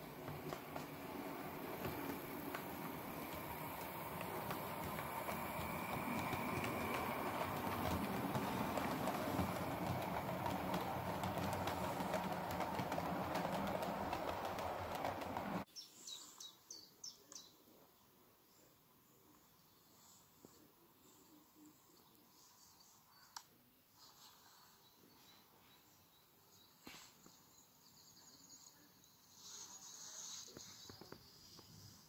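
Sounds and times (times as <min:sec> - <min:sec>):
model train clattering on track: 0:00.0 - 0:15.6
rail joint clicks: 0:00.0 - 0:15.6.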